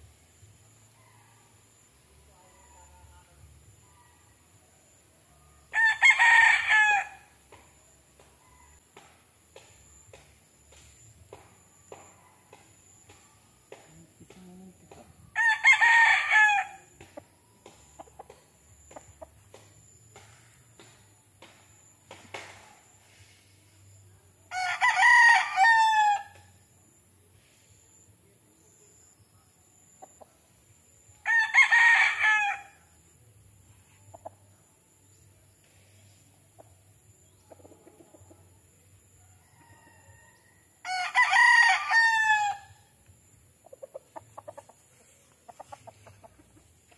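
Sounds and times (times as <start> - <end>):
rooster crowing: 5.7 - 7.3, 15.3 - 16.9, 24.5 - 26.4, 31.2 - 32.8, 39.3 - 42.8.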